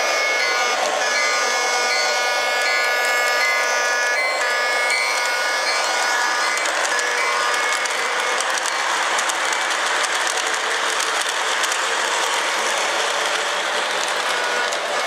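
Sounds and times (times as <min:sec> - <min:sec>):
model steam train hissing: 0:00.0 - 0:15.0
wheels clicking over rails: 0:04.3 - 0:15.0.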